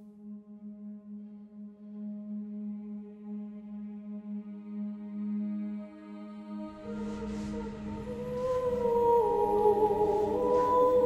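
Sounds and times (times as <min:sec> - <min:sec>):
low sustained drone: 0:06.5 - 0:11.0.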